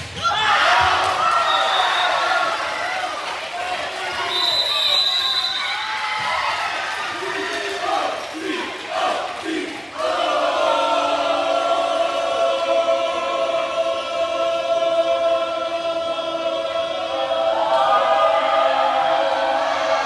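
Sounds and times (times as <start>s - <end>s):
group of voices singing: 7.3s - 20.0s.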